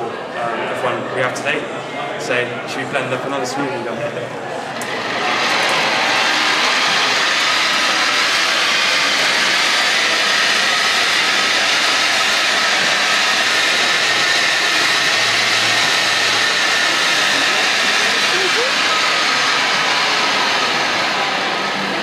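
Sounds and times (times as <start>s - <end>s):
blender whirring: 4.7s - 22.0s.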